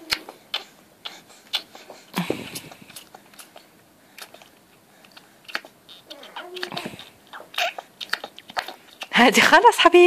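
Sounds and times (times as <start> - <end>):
baby sucking on fingers: 0.0 - 9.2
baby grunting: 5.5 - 8.9.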